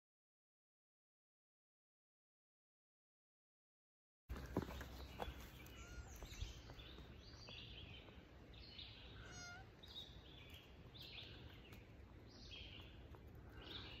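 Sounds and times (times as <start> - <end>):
songbird chirping: 4.3 - 14.0.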